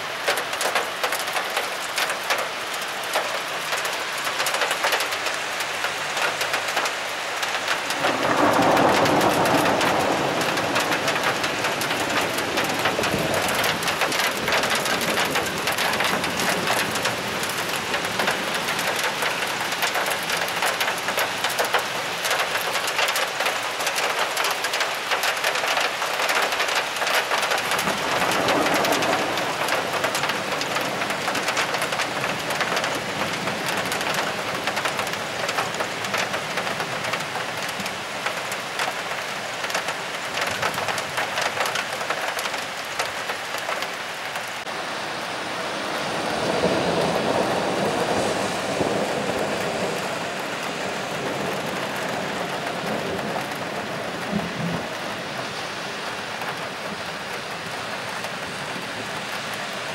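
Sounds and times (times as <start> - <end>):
heavy rain falling: 0.0 - 59.9
thunder rumble: 7.7 - 21.8, 27.5 - 36.3, 45.6 - 55.1.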